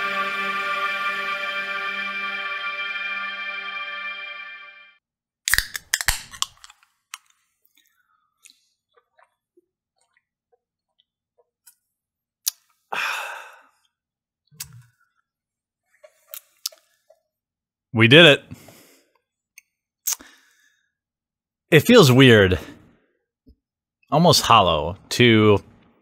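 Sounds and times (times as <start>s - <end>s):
breathy exhale: 12.9s - 13.8s.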